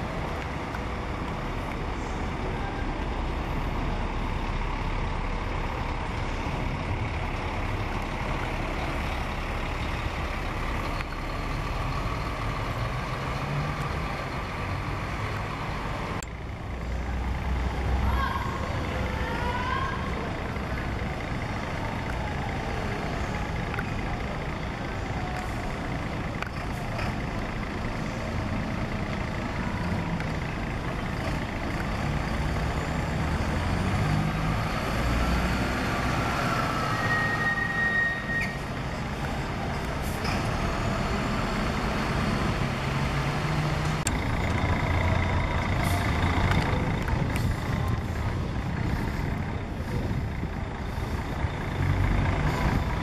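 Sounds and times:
bus diesel engine rumbling: 0.0 - 53.0
brief high squeal: 36.7 - 38.7.

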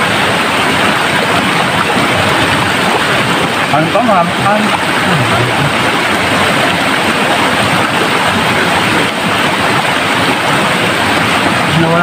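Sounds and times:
river rushing over boulders: 0.0 - 12.0.

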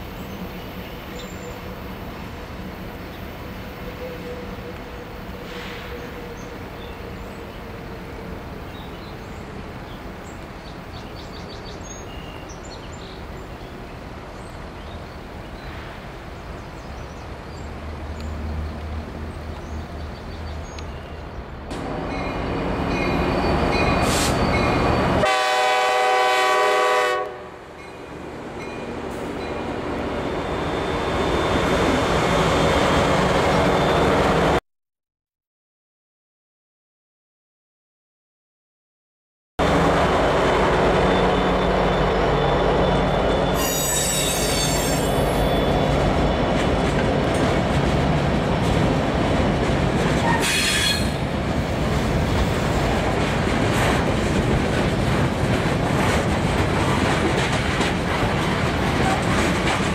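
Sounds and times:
diesel locomotives rumbling: 0.0 - 34.6, 39.6 - 59.9
train horn blast: 23.9 - 27.6.

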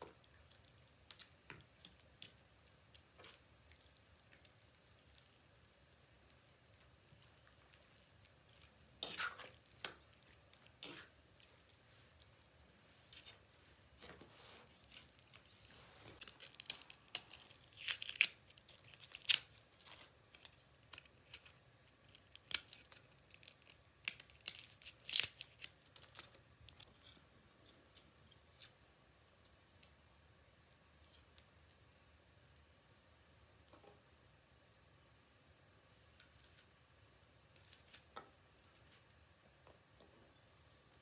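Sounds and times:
garlic skins crackling and tearing: 16.1 - 27.2.

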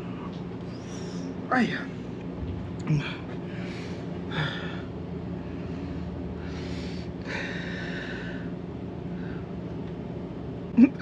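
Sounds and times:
steady low hum: 0.0 - 11.0
man breathing noisily: 3.0 - 9.6.

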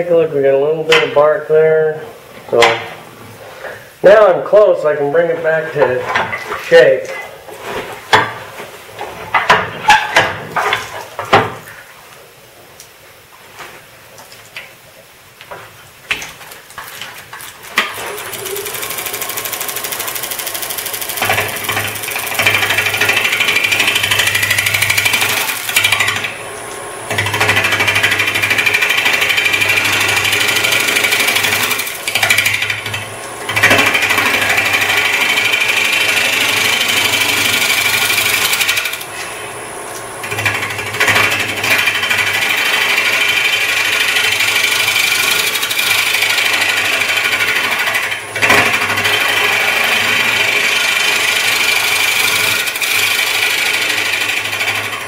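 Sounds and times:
turning tool cutting wood: 17.8 - 39.6, 40.2 - 55.0
lathe humming: 18.0 - 55.0.

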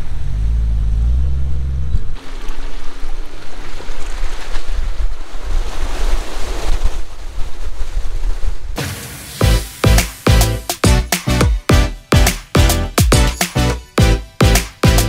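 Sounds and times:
vehicle engine at low revs: 0.0 - 2.6
wind rushing over camera: 1.5 - 8.8
tyres splashing through muddy water: 2.2 - 5.7.

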